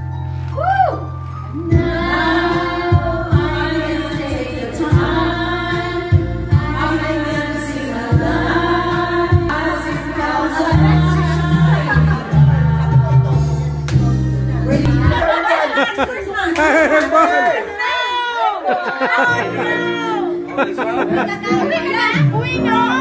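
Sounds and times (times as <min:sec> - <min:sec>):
backing track with steady beat: 0:01.3 - 0:16.1, 0:19.3 - 0:23.0
woman singing into microphone: 0:01.6 - 0:13.4
other voices singing along: 0:01.6 - 0:13.6.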